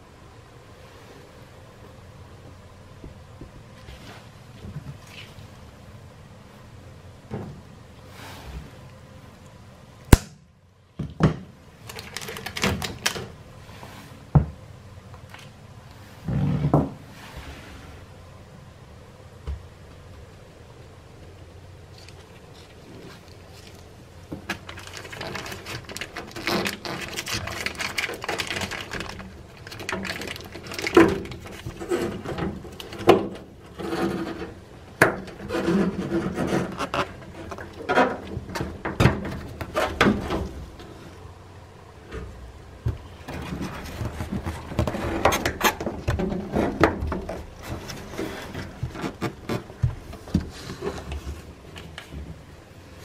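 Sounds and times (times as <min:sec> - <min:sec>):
rubbing and scraping on plastic: 0:21.9 - 0:41.3, 0:42.0 - 0:53.0.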